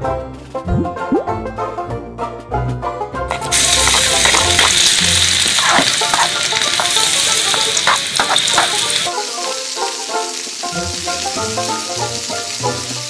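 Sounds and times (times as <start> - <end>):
metal ladle scraping wok: 3.3 - 9.1
food sizzling in hot oil: 3.3 - 13.0.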